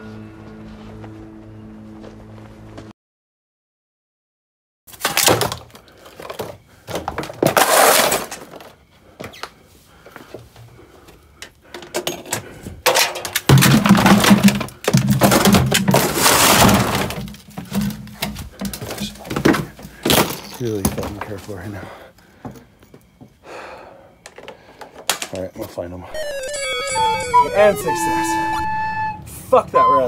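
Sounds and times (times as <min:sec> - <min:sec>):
hard objects clattering on concrete: 0:05.0 - 0:08.8, 0:11.7 - 0:21.5, 0:24.2 - 0:25.5.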